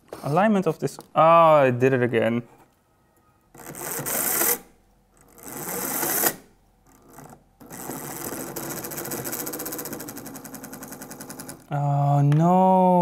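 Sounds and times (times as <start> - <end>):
motor and gearbox rattling: 5.2 - 11.7.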